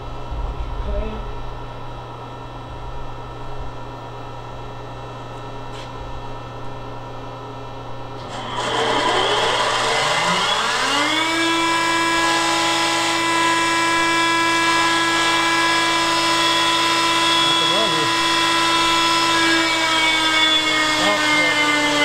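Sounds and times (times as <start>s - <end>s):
grinder spindle whine: 8.1s - 22.0s.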